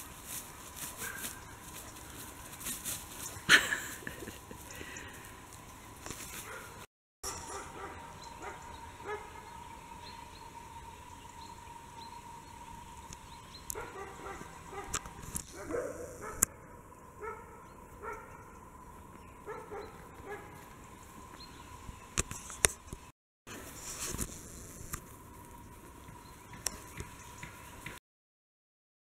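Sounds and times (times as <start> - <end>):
dog barking: 1.0 - 1.4, 6.4 - 9.4, 13.7 - 16.5, 17.2 - 18.4, 19.5 - 20.6.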